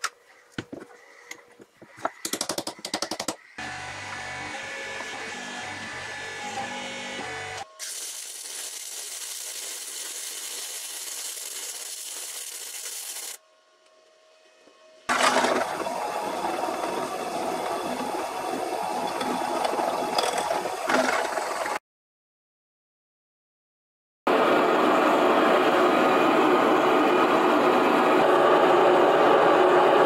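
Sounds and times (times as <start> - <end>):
welding arc hissing: 7.8 - 13.4.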